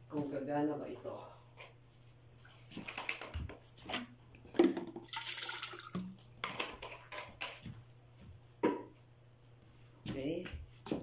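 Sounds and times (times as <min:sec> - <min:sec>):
water pouring and splashing: 0:05.0 - 0:06.2.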